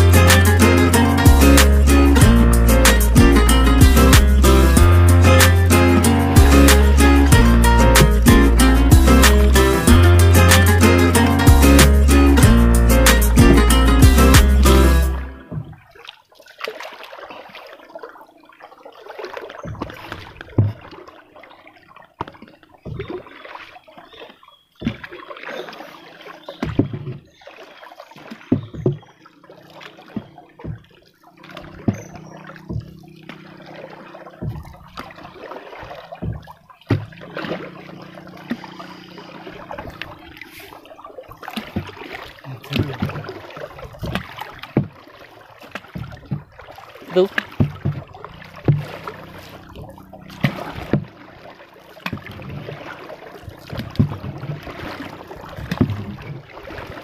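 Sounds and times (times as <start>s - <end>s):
paddle splashing in water: 0.0s - 57.0s
sharp knocks on wooden boat: 3.2s - 5.6s, 22.8s - 23.2s, 26.6s - 27.3s, 28.5s - 29.1s, 30.1s - 33.7s, 34.3s - 35.3s, 36.1s - 38.7s, 43.9s - 45.1s, 47.2s - 51.2s, 53.5s - 56.3s.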